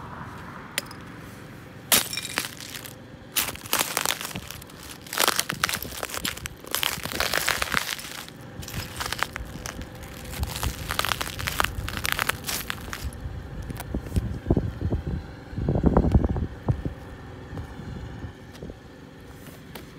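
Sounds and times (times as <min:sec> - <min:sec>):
boots crushing glass in bag: 0:01.9 - 0:13.2
dull low thumps and scuffs: 0:02.2 - 0:17.8.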